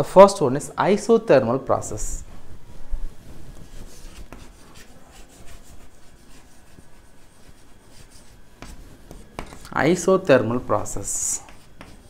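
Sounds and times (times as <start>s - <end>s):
chalk scratching on chalkboard: 3.5s - 12.0s.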